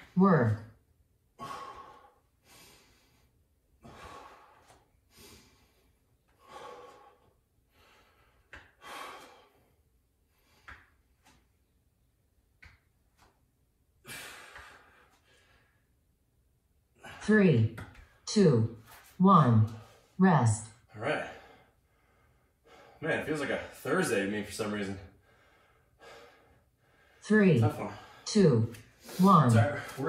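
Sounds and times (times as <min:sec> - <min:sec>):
man breathing hard: 0:01.3 - 0:11.0, 0:14.0 - 0:16.0, 0:21.1 - 0:23.0, 0:25.1 - 0:27.2.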